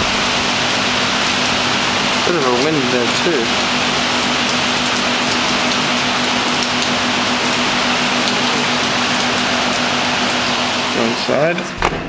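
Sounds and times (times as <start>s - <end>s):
pouring rain hiss: 0.0s - 11.6s.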